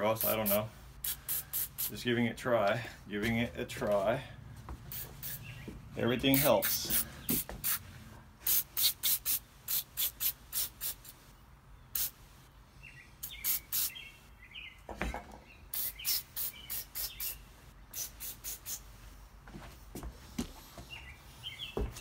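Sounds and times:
aerosol spray hissing: 0.2s - 2.0s, 4.9s - 5.6s, 6.2s - 7.8s, 8.4s - 11.2s, 11.9s - 12.2s, 13.2s - 14.0s, 15.7s - 19.0s.

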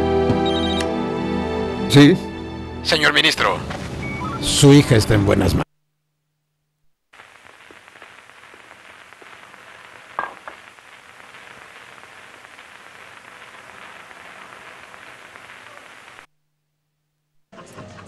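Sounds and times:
old film soundtrack hiss: 7.1s - 16.3s.

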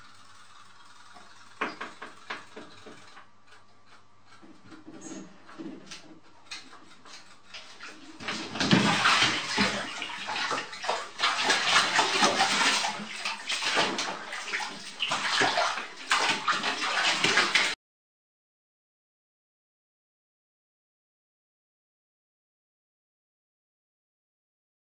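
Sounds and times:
cat splashing in bathtub water: 5.5s - 17.8s.

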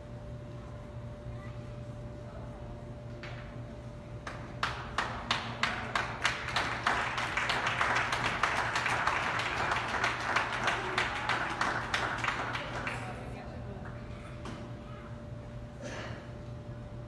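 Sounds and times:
audience clapping: 4.2s - 13.4s.

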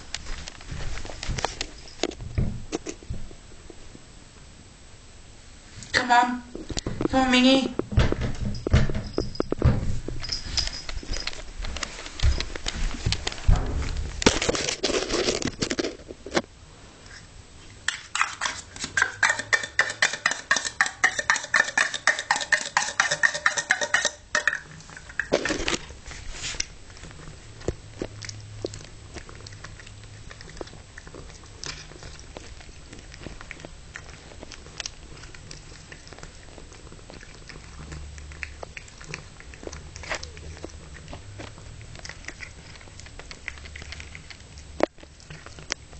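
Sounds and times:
cat chewing food: 17.0s - 45.9s.

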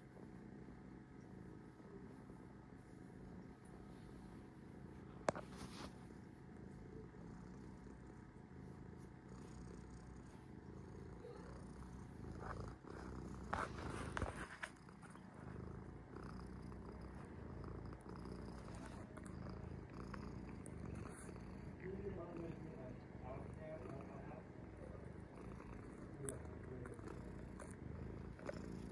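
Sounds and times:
cat purring: 0.0s - 28.9s.

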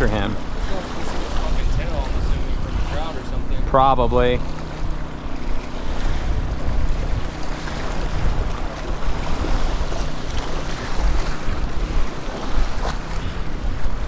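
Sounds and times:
wind buffeting microphone: 0.0s - 14.0s
sea waves splashing on rocks: 7.0s - 13.9s.

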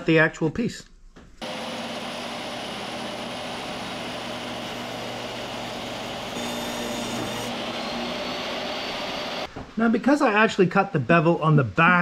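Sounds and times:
table saw cutting board: 1.4s - 9.5s.

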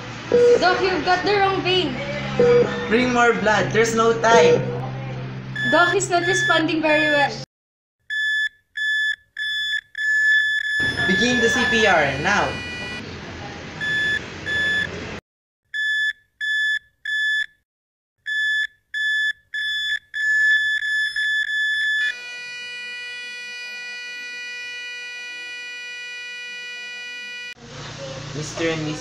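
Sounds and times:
heart monitor flatline tone: 0.3s - 0.6s, 2.4s - 2.9s, 5.6s - 7.3s, 8.1s - 13.0s
heart monitor beeping: 2.4s - 2.9s, 5.6s - 7.3s, 8.1s - 13.0s, 13.8s - 14.9s, 15.8s - 17.5s, 18.3s - 27.6s.

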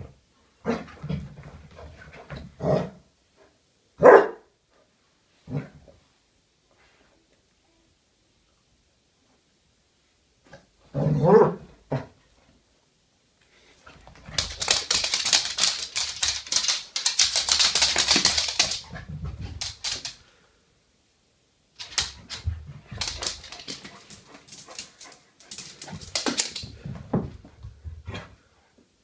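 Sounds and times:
dog claws scratching on floor: 14.1s - 20.2s, 21.8s - 26.8s.

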